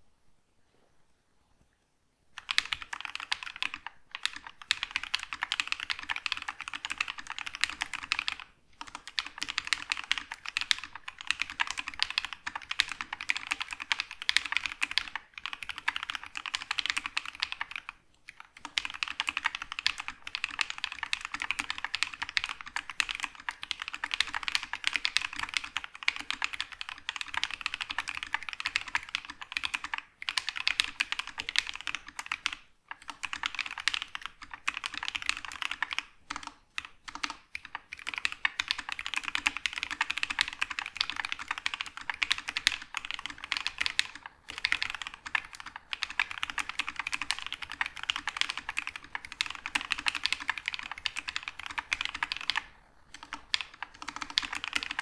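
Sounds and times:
mechanical keyboard typing: 2.4 - 55.0.

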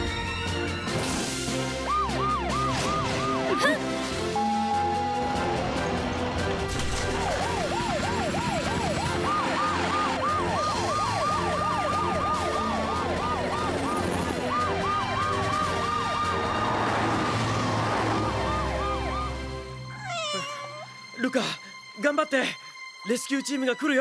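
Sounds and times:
slow long siren wail: 1.6 - 6.2, 7.2 - 20.0
cartoon sirens rising and falling: 1.7 - 5.9, 7.2 - 20.9.

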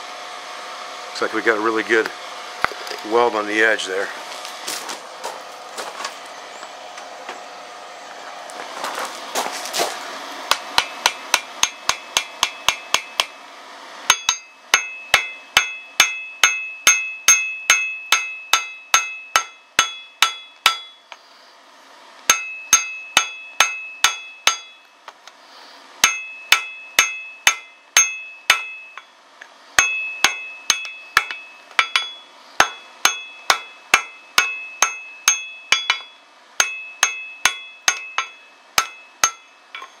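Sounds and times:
hammer striking hot steel on anvil: 10.5 - 13.4, 14.1 - 21.2, 22.3 - 24.9, 26.0 - 29.1, 29.8 - 40.0.

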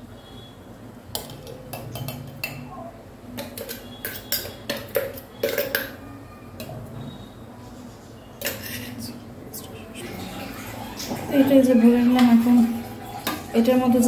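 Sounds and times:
spoon clinking against blender jar: 3.4 - 6.0.

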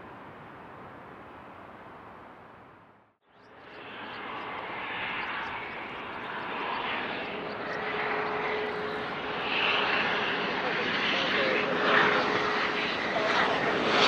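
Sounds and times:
jet engines rushing: 3.5 - 14.0.

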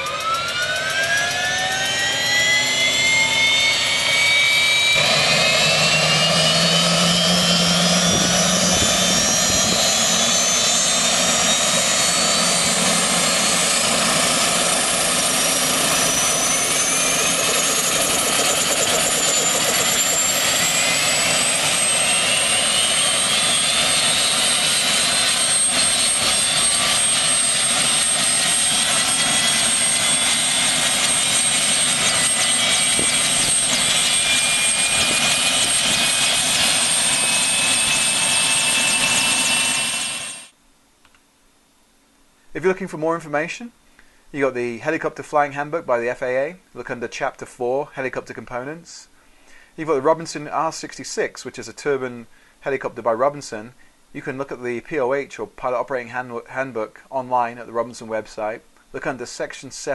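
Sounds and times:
engine roar: 0.0 - 40.5
helicopter rotor turning: 0.0 - 40.6
turbine engine whine rising: 0.0 - 40.6.

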